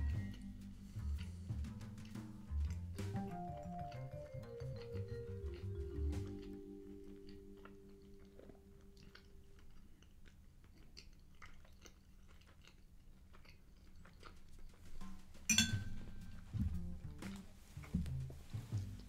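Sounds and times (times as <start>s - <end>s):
held music notes: 0.0s - 9.6s, 14.9s - 19.0s
chewing food: 0.0s - 15.5s.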